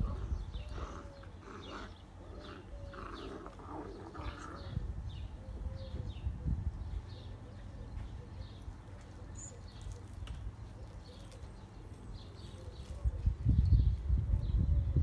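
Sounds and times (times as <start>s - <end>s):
low rumble on microphone: 0.0s - 1.7s, 12.8s - 15.0s
bird cooing: 0.0s - 11.7s, 12.3s - 13.6s
birds chirping: 0.0s - 15.0s.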